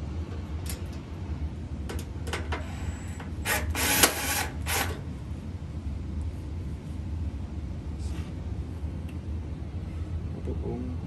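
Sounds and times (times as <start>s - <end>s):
cordless drill driving screws: 3.4s - 5.0s.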